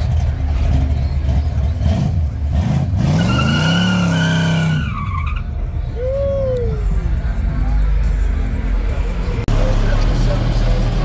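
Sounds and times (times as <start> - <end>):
car engine revving: 0.0 - 5.0
tire squeal: 0.1 - 7.0.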